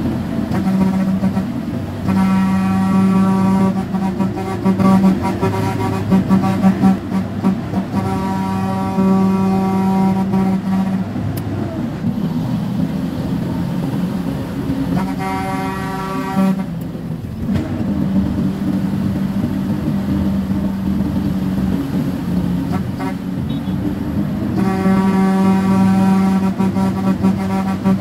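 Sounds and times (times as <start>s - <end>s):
truck engine running: 0.0s - 28.0s
truck horn blasts: 0.3s - 12.2s, 14.6s - 16.9s, 17.5s - 28.0s.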